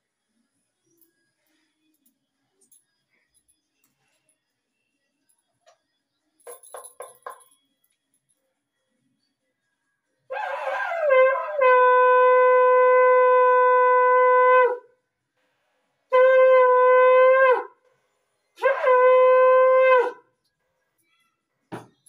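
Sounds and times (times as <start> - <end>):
conch shell blasts: 16.1 - 17.7, 18.6 - 20.2.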